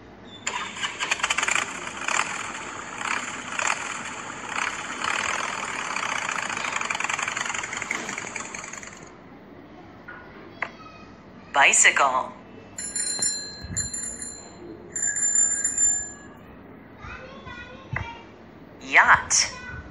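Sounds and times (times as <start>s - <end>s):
motorcycle engine revving: 1.2s - 9.1s.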